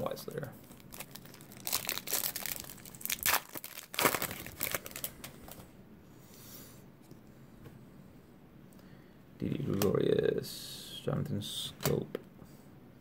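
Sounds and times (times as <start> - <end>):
foil wrapper crinkling and tearing: 0.6 - 5.6.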